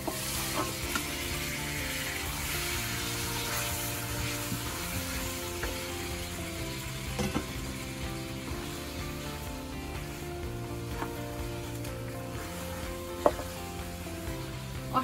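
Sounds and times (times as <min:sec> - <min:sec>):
background music: 0:00.0 - 0:15.0
beef sizzling in hot oil: 0:00.0 - 0:15.0
spatula stirring: 0:10.9 - 0:15.0.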